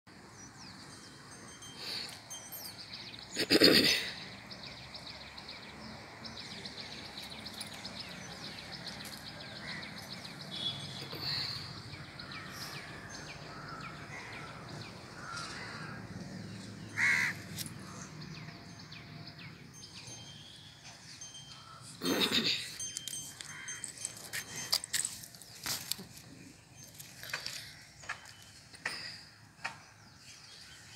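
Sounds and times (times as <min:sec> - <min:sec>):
birds chirping: 0:00.2 - 0:30.9
crow-like caw: 0:15.2 - 0:16.0, 0:17.0 - 0:17.4.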